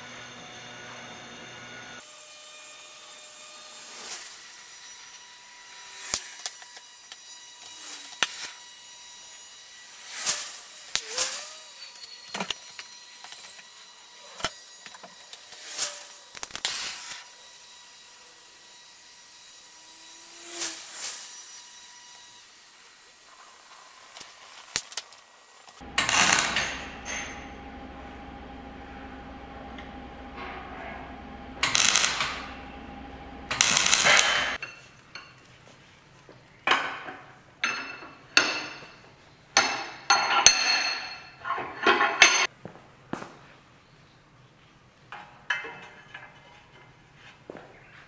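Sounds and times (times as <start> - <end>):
faint steady hum: 25.8 - 34.6.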